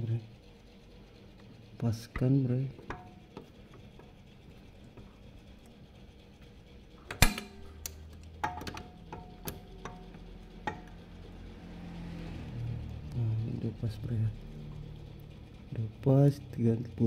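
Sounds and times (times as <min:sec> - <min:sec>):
wrench knocking on metal: 0:08.4 - 0:11.0.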